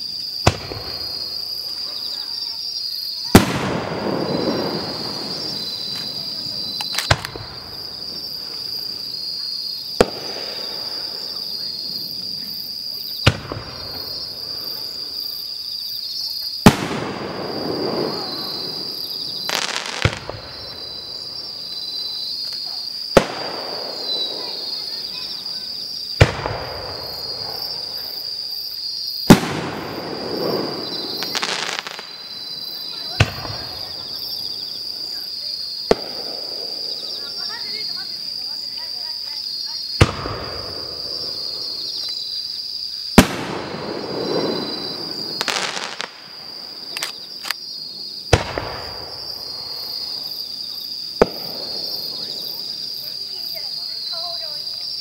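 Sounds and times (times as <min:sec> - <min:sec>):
insects chirring: 0:00.0 - 0:55.0
firework shells bursting: 0:03.2 - 0:12.6, 0:16.6 - 0:28.3, 0:29.1 - 0:37.8, 0:43.1 - 0:52.9.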